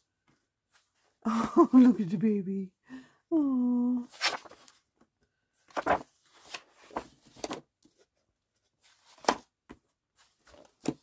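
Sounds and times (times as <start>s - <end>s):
book pages rustling: 4.1s - 5.0s, 5.6s - 11.0s.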